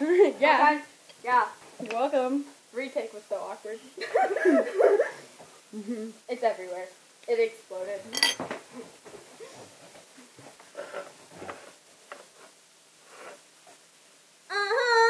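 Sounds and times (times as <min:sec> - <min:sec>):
girl singing: 0:14.5 - 0:15.0.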